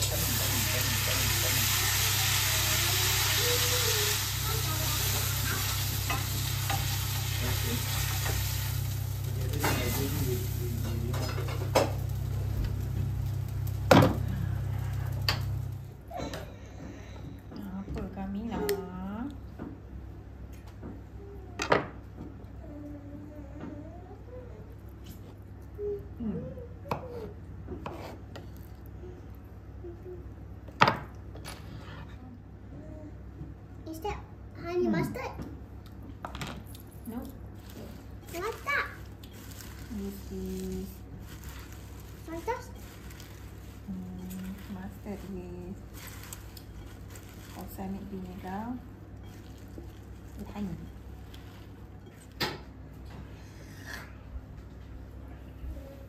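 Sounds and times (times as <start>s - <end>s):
steak sizzling in a frying pan: 0.0s - 15.8s
steady low hum: 0.0s - 56.0s.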